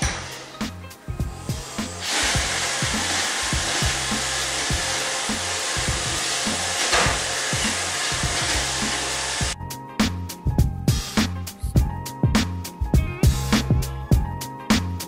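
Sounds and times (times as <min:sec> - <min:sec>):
background music with steady beat: 0:00.0 - 0:15.0
robot vacuum whirring: 0:01.6 - 0:09.6.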